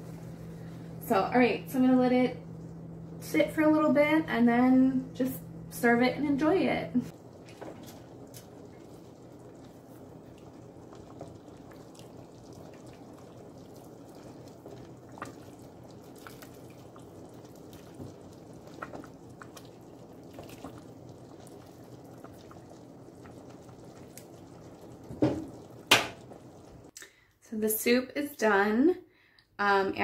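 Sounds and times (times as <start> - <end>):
ladle stirring soup: 7.1 - 26.8.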